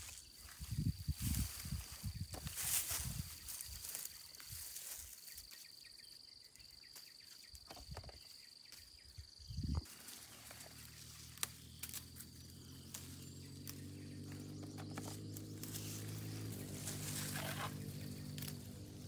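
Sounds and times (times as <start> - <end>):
insect trilling: 9.4 - 19.0.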